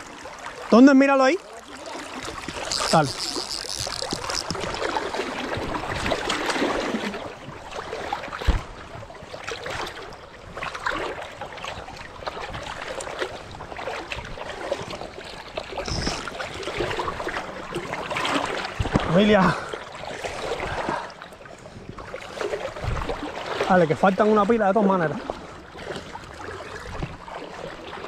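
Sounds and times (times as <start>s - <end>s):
river current rushing: 0.0s - 7.3s, 15.7s - 17.1s
small knocks and splashes: 1.4s - 19.3s, 25.2s - 28.0s
dull thump: 8.4s - 8.7s.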